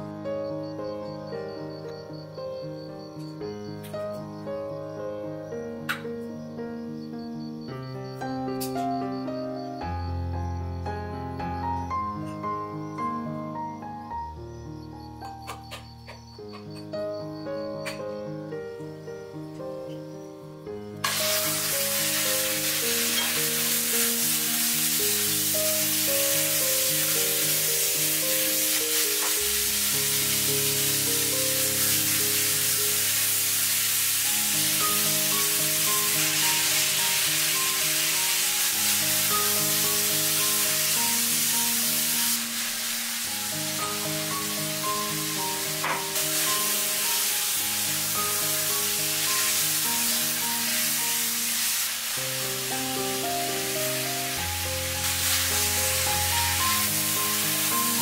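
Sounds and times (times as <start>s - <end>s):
background music: 0.0s - 58.0s
meat sizzling in oil: 21.0s - 58.0s.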